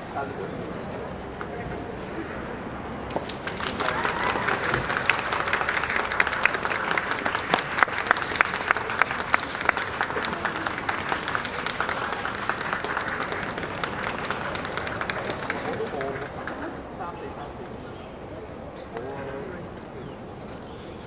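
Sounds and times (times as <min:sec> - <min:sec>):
crowd applauding: 0:03.1 - 0:16.9.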